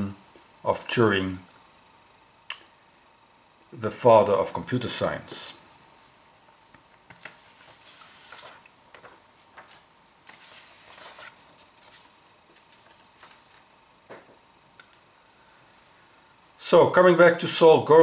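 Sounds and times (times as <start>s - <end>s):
cloth wiping chalkboard: 6.0s - 13.7s.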